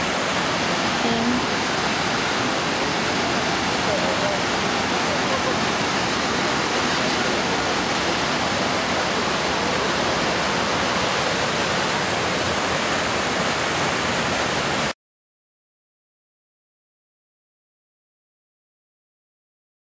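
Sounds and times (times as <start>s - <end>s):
waterfall rushing: 0.0s - 14.9s.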